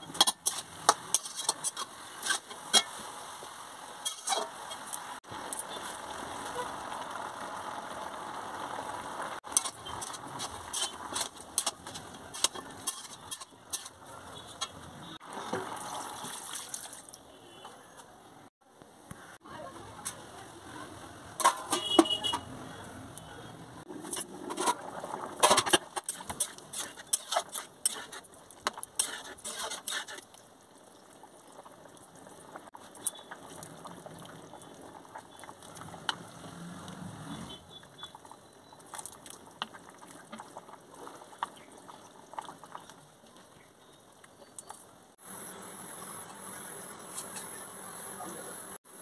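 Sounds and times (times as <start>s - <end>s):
wooden spoon stirring stew: 9.5s - 15.8s, 24.0s - 30.4s, 32.6s - 43.6s
utensils knocking and clattering: 21.4s - 22.1s.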